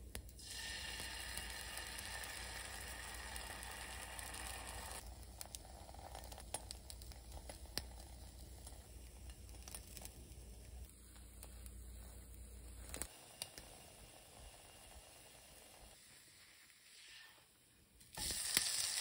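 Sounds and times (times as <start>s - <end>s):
egg sizzling in a frying pan: 0.0s - 17.5s, 18.1s - 19.0s.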